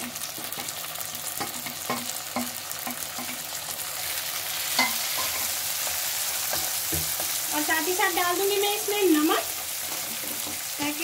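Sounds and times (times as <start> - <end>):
vegetables sizzling in hot oil: 0.0 - 11.0
utensils knocking against pan: 1.4 - 3.4, 6.5 - 7.4.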